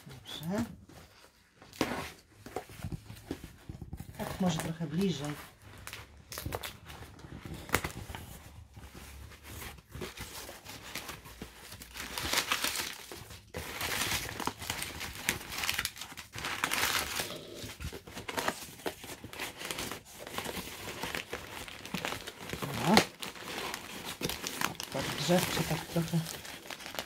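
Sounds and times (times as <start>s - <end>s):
paper and cardboard crinkling: 0.0s - 27.0s
packing tape tearing: 10.0s - 27.0s.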